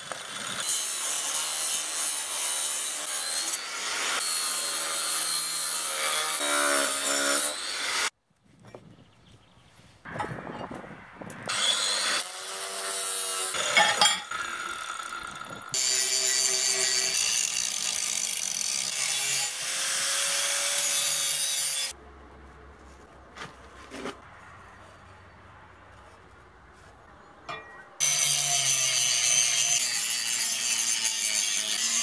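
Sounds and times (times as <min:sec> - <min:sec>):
angle grinder cutting steel: 0:00.0 - 0:08.1, 0:11.5 - 0:22.0, 0:28.0 - 0:32.0.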